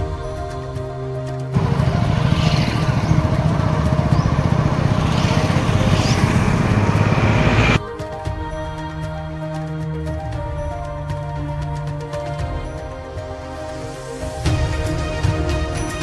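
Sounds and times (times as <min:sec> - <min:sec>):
background music: 0:00.0 - 0:16.0
motorcycle engine rumble: 0:01.6 - 0:07.8
road noise: 0:01.6 - 0:07.8.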